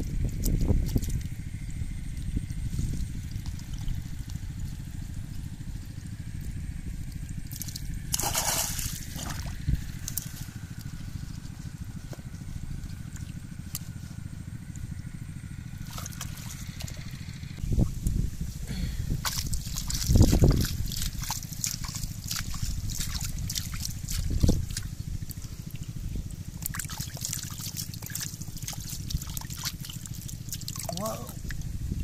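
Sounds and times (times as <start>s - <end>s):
small crackling drips: 0.0s - 1.4s, 2.2s - 15.1s, 19.2s - 31.8s
muddy water trickling and sloshing: 0.0s - 18.5s, 19.1s - 32.0s
steady low rumble: 0.0s - 32.0s
water splashes: 7.2s - 10.5s, 15.8s - 17.4s, 19.2s - 31.7s.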